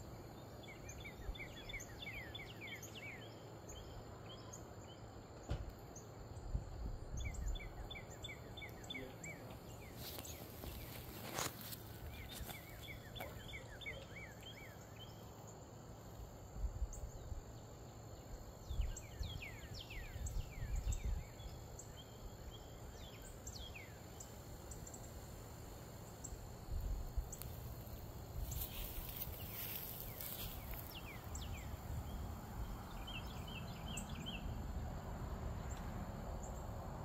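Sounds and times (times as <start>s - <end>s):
faint high insect drone: 0.0s - 37.0s
songbirds whistling: 7.2s - 15.2s.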